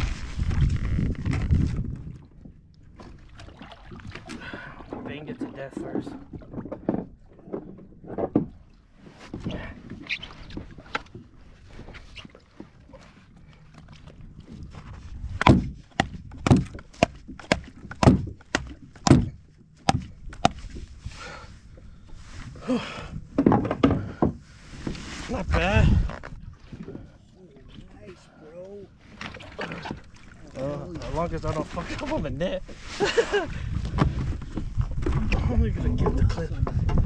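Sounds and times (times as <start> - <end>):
hard thuds clubbing fish: 15.3 - 20.8
knocks from handling fish: 15.4 - 20.6.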